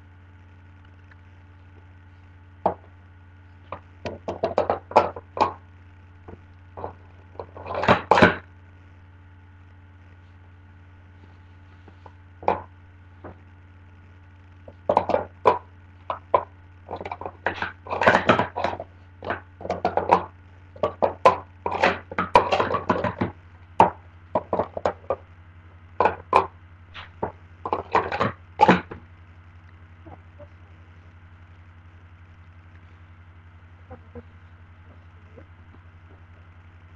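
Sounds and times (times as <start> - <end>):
plastic cups clacking: 3.7 - 5.6, 6.8 - 8.4, 12.0 - 13.4, 14.7 - 25.2, 26.0 - 29.0.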